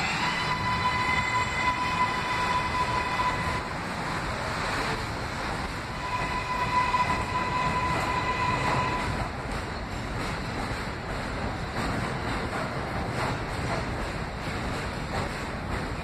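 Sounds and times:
high-pitched train whine: 0.0s - 10.2s
subway train rumbling: 0.0s - 16.0s.

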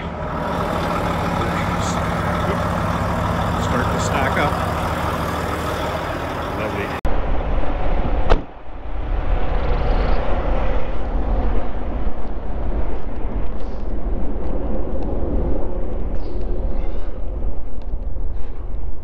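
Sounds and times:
diesel truck engines idling: 0.0s - 7.0s.

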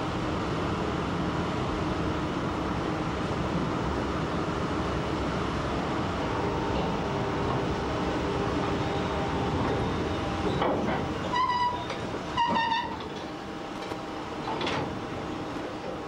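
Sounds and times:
diesel locomotive running: 0.0s - 16.0s
locomotive horn toots: 11.3s - 13.0s.

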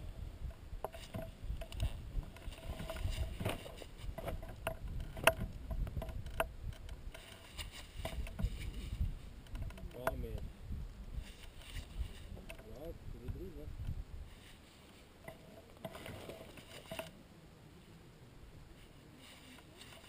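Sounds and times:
wind buffeting microphone: 0.0s - 7.1s, 7.9s - 14.4s.

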